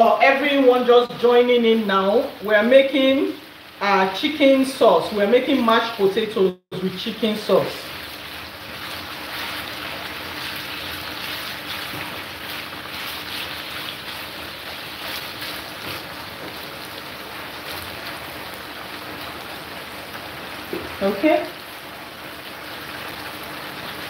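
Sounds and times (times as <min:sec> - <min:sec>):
chicken sizzling in oil: 0:00.0 - 0:24.0
spatula stirring in pan: 0:07.9 - 0:16.9.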